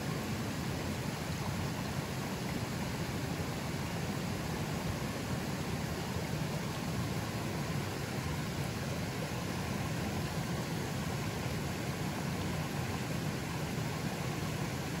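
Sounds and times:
river flowing: 0:00.0 - 0:15.0.

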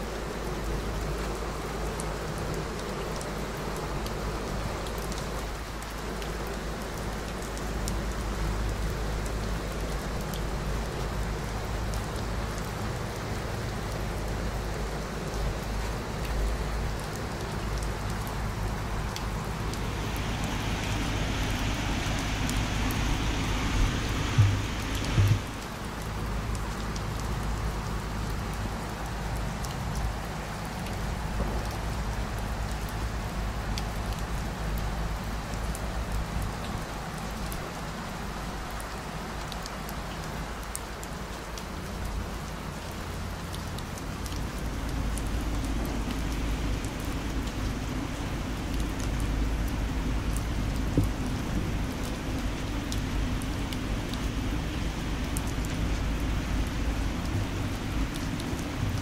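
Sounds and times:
raindrops ticking: 0:00.0 - 0:59.0
steady rain falling: 0:00.0 - 0:59.0
low rumble: 0:18.5 - 0:26.0.

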